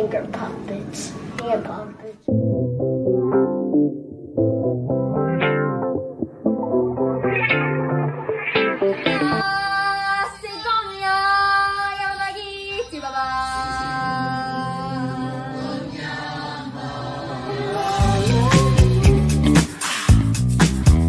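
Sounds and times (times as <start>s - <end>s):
voices singing sustained notes: 8.8s - 10.2s, 12.4s - 19.3s.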